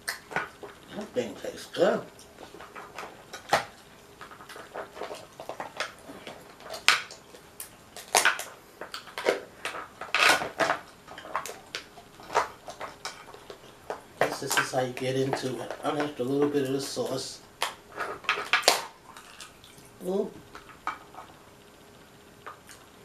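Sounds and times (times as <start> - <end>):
crab shell cracking: 2.2 - 14.7, 17.5 - 21.3.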